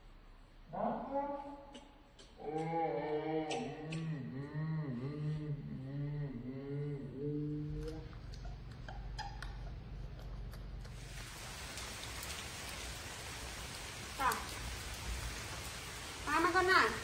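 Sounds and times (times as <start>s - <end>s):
steady rain: 10.8s - 17.0s.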